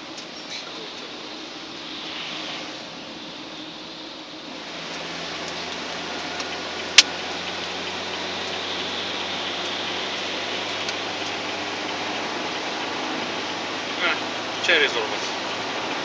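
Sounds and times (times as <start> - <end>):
engine hum inside vehicle: 0.0 - 16.0
tyre hiss on wet road: 1.8 - 2.9.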